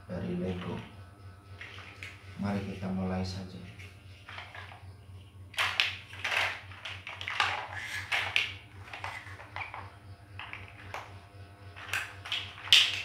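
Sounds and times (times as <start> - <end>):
low steady hum: 0.0 - 13.0
plastic toy bricks clattering: 5.6 - 9.8.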